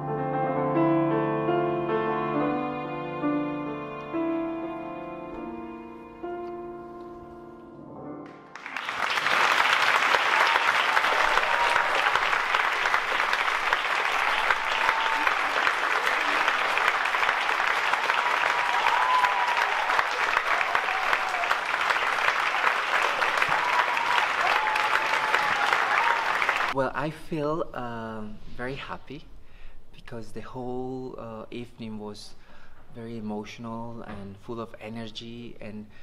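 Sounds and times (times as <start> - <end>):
slow instrumental music: 0.0 - 8.8
audience applause: 8.4 - 26.8.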